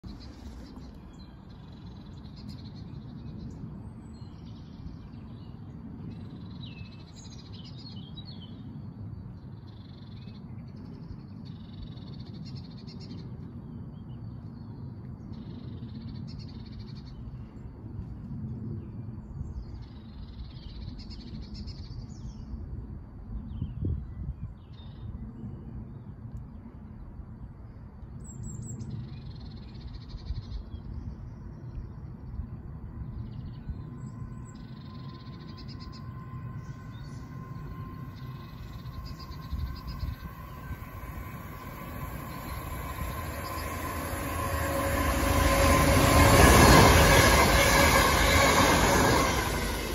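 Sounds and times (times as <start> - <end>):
steady low rumble: 30.9 - 49.9.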